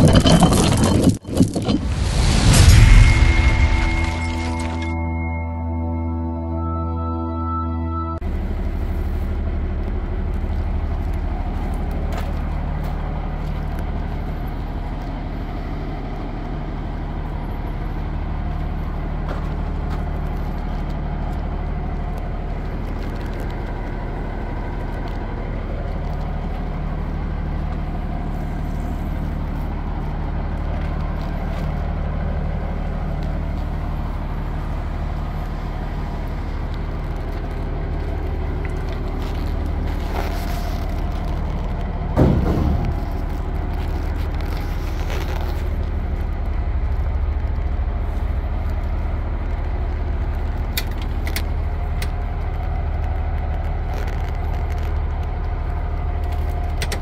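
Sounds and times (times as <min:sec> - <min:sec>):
diesel engine idling: 0:01.8 - 0:57.0.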